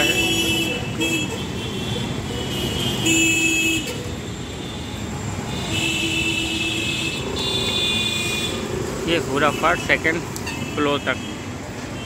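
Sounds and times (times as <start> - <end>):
vehicle horns honking: 0.0 - 8.7, 9.4 - 12.0
busy street traffic: 0.0 - 12.0
motorbikes passing: 5.0 - 12.0.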